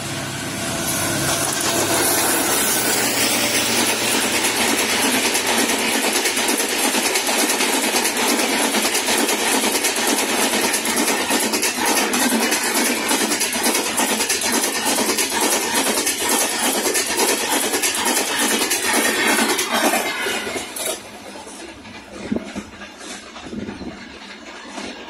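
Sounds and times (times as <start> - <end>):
locomotive engine rumbling: 0.0 - 7.5
train wheels rushing on rails: 0.0 - 25.0
wheels clattering on track: 0.7 - 25.0.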